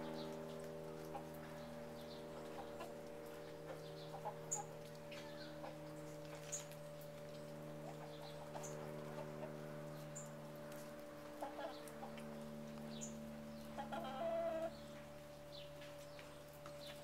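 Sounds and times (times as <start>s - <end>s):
steady low hum: 0.0s - 17.0s
hens clucking softly: 0.7s - 1.6s, 2.3s - 6.6s, 10.8s - 12.5s, 13.6s - 14.9s.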